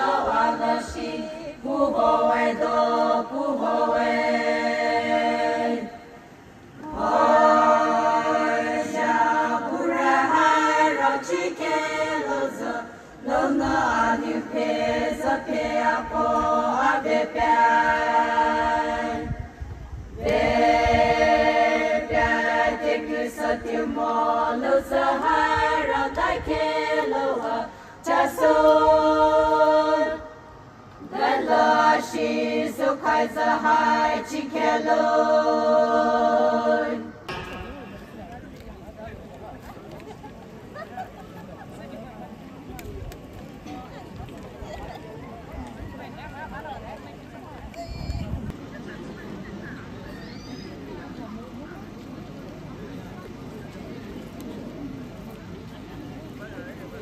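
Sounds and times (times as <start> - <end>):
group singing unaccompanied: 0.0 - 38.6.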